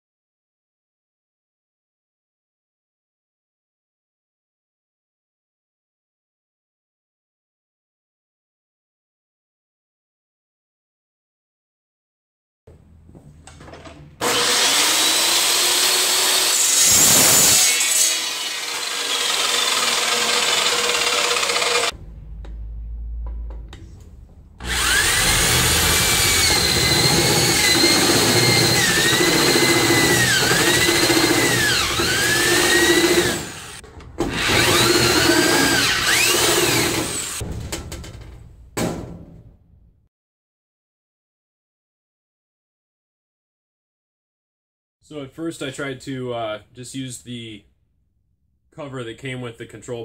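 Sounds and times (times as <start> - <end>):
cordless drill boring through metal: 14.2 - 22.0, 24.6 - 37.4.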